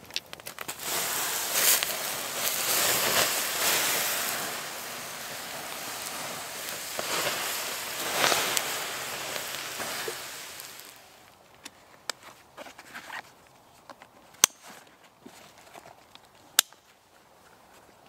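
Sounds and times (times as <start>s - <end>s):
water hissing on hot embers: 0.1s - 11.3s.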